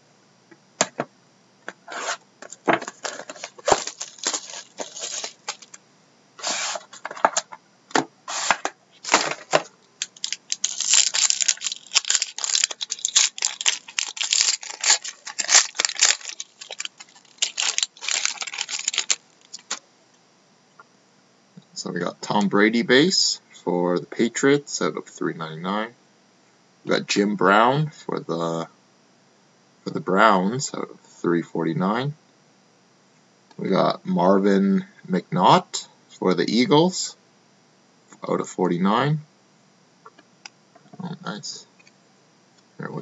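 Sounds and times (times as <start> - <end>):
wrapper tearing and crinkling: 2.8 - 5.8, 9.0 - 19.8.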